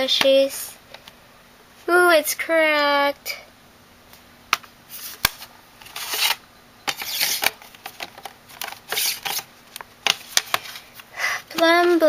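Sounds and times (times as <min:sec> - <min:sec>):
plastic sliding and scraping: 0:04.9 - 0:09.5.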